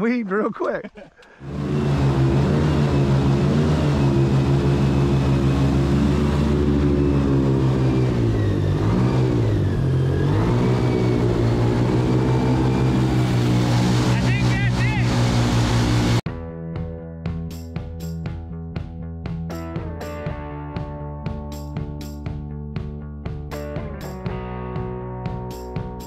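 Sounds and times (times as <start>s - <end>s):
airboat engine and propeller: 1.4s - 16.3s.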